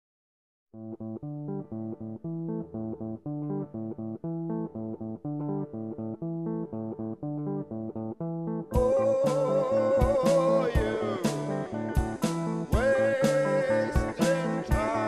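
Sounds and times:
plucked guitar and bass riff: 0:00.8 - 0:15.0.

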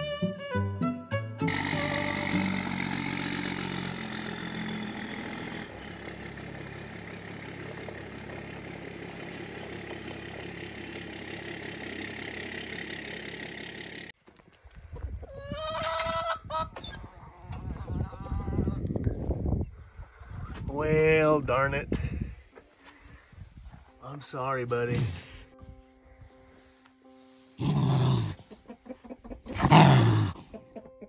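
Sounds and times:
pickup truck engine running: 0:01.5 - 0:14.1.

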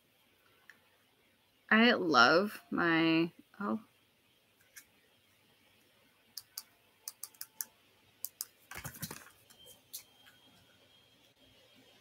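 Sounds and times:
computer keys clicking: 0:06.4 - 0:09.3.

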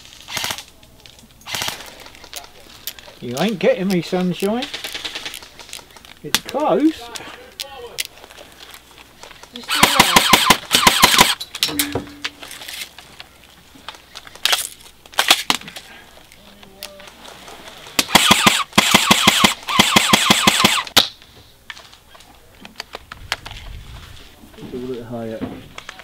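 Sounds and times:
airsoft gun firing bursts: 0:00.3 - 0:00.6, 0:01.5 - 0:01.9, 0:09.7 - 0:11.4, 0:18.0 - 0:21.0.

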